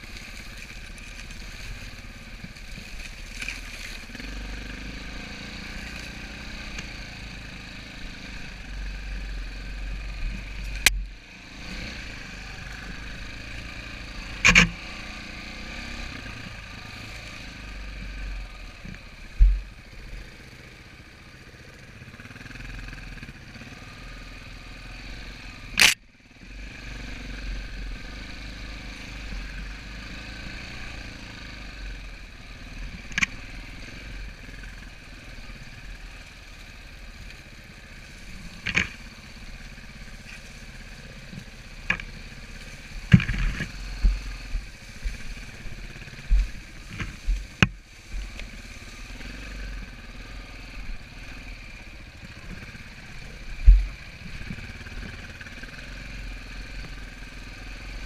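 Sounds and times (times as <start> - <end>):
dirt bike engine running: 0.0 - 58.0
bike knocking over rocks: 43.1 - 45.3.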